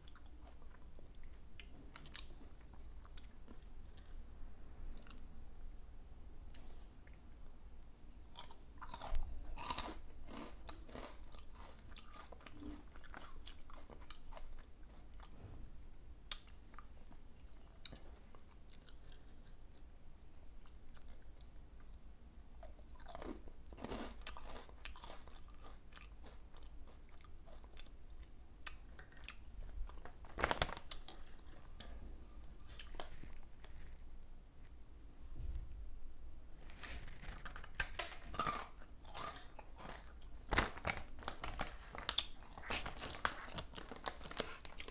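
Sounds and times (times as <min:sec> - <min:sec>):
crisp snacks being chewed: 0:00.0 - 0:04.2, 0:08.2 - 0:15.4, 0:22.6 - 0:34.0, 0:36.7 - 0:44.9.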